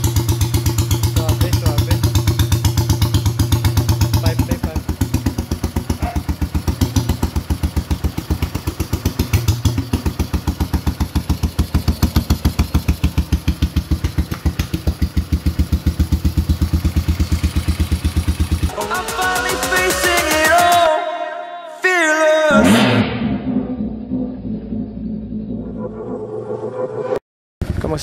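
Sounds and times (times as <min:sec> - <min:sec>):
motorcycle engine idling: 0:00.0 - 0:20.7.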